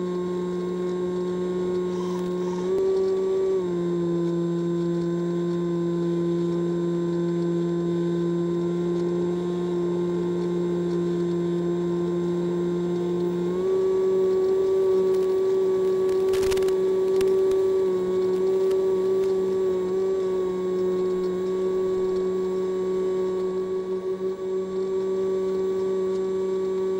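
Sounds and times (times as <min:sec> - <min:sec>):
model plane motor whine: 0:00.0 - 0:26.9
short crackle: 0:14.3 - 0:19.6.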